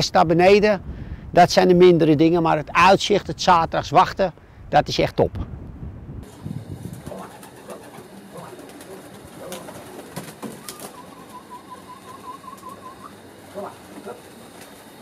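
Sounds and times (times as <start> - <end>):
pigeons cooing: 6.8 - 15.0.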